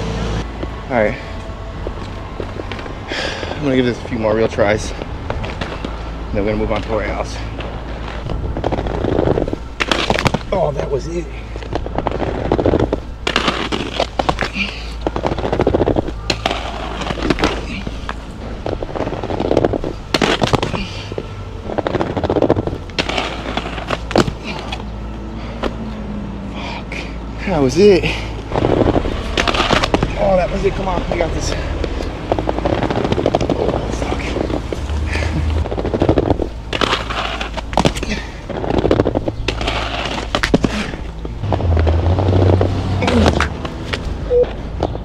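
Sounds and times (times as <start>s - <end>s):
skate wheels rattling on concrete: 2.4s - 24.9s, 26.9s - 44.2s
skates clacking on hard surfaces: 29.4s - 30.1s, 36.4s - 41.0s.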